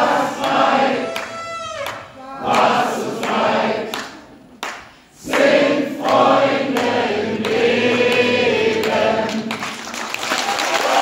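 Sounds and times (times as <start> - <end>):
many voices singing together: 0.0 - 9.9
violin bowed: 0.8 - 2.4.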